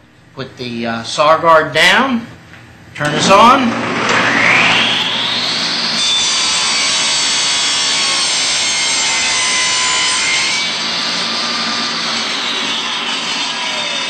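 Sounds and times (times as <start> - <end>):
table saw cutting wood: 3.1 - 14.0.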